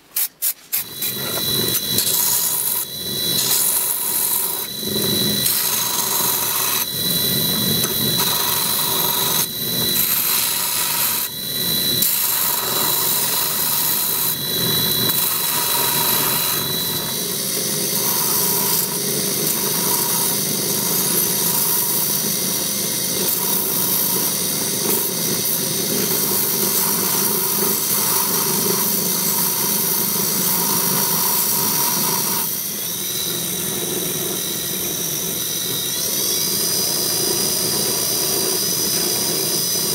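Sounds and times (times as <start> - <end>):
lathe motor whine: 0.8 - 39.9
metal grinding on sanding disc: 0.9 - 22.3.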